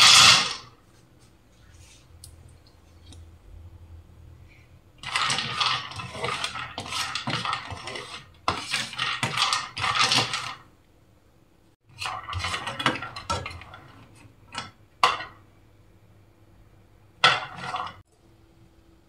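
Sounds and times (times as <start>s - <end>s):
spoon scraping frying pan: 5.0s - 10.5s
nuts rattling in pan: 5.0s - 10.6s.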